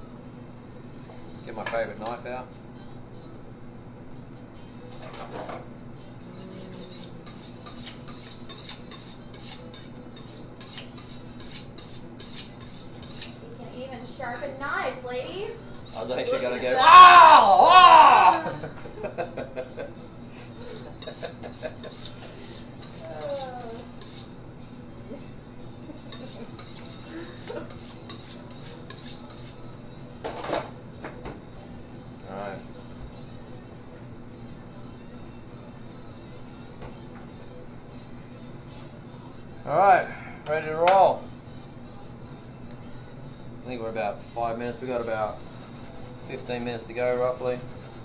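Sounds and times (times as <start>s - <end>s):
knife scraping on sharpening steel: 6.2s - 13.4s, 15.7s - 16.8s, 20.6s - 24.4s, 26.1s - 29.7s.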